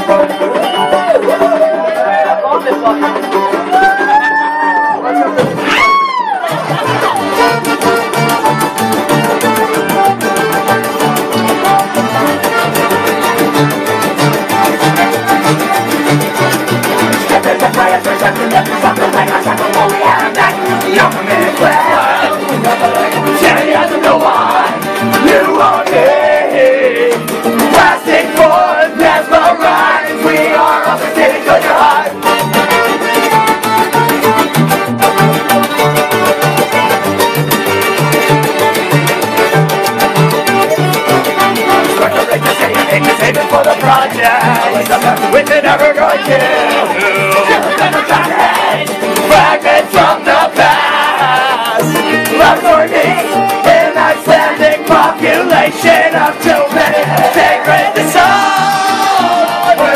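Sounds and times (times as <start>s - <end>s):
electric guitar: 0.0s - 59.9s
live band playing loud: 0.0s - 59.9s
pulsing bass line: 5.4s - 59.9s
fast even drum beat: 6.6s - 34.8s, 35.5s - 59.9s
person singing: 17.0s - 32.9s, 40.4s - 59.9s.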